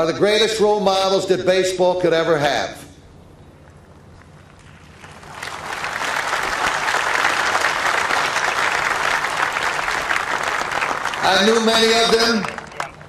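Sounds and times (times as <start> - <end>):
crowd applauding: 4.6 - 13.0.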